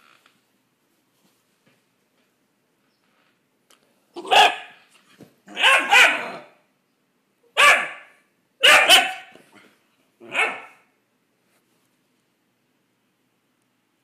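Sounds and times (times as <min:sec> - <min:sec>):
puppy barking: 0:04.2 - 0:04.8, 0:05.5 - 0:06.6, 0:07.5 - 0:09.4, 0:10.2 - 0:10.9.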